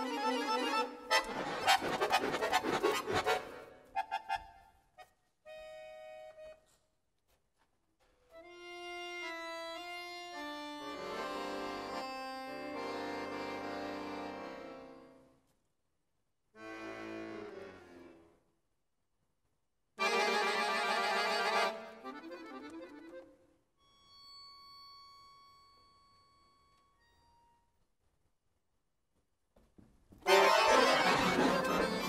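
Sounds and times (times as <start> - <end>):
accordion playing chords: 0.0 - 6.8, 8.4 - 15.4, 16.5 - 18.4, 20.0 - 24.2, 30.2 - 32.0.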